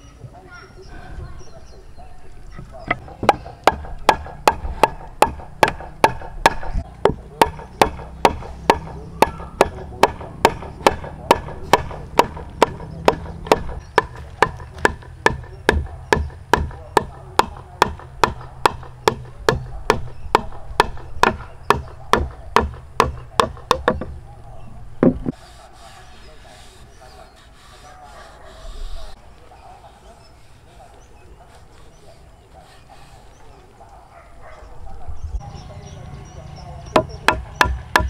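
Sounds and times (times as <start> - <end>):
wooden mallet striking wood: 2.6 - 24.2, 25.0 - 25.4, 36.9 - 38.0.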